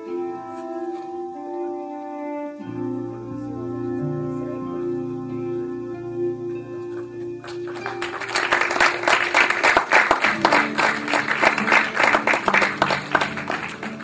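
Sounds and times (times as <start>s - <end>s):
soft background music: 0.0s - 14.0s
audience applauding: 6.9s - 14.0s.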